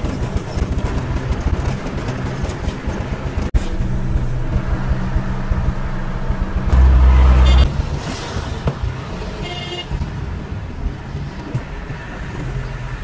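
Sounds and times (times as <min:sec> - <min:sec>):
truck engine and road noise: 0:00.0 - 0:13.0
loud low rumble: 0:03.6 - 0:08.6
short horn toot: 0:06.7 - 0:07.7.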